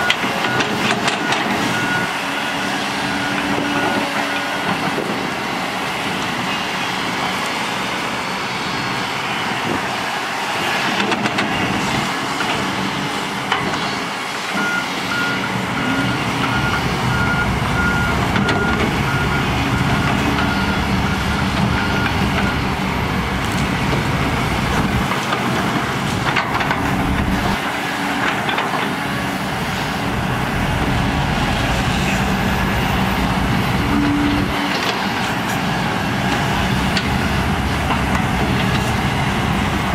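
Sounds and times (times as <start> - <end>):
reversing alarm beeping: 0.0 - 4.8, 14.5 - 22.7
excavator diesel engines: 0.0 - 39.9.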